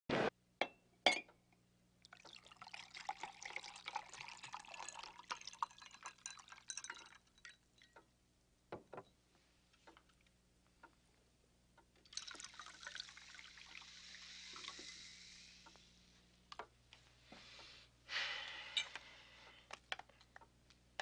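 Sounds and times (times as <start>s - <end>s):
whisky pouring over ice: 2.1s - 7.6s, 12.1s - 15.5s
faint clicks and ticks: 9.0s - 12.1s, 15.6s - 17.7s, 18.5s - 21.0s.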